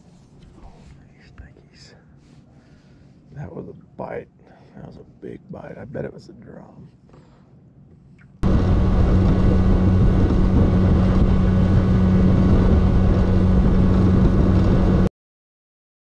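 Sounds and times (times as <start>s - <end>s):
outboard motor running: 8.4s - 15.1s
wind rushing past microphone: 8.4s - 15.1s.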